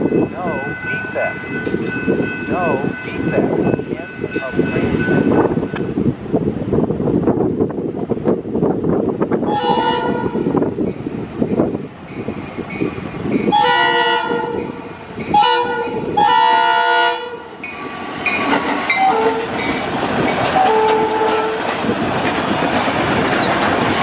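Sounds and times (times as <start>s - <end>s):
train rumbling past: 0.0s - 24.0s
locomotive air horn blasts: 9.5s - 10.6s, 13.5s - 17.5s, 19.0s - 19.5s, 20.6s - 21.6s.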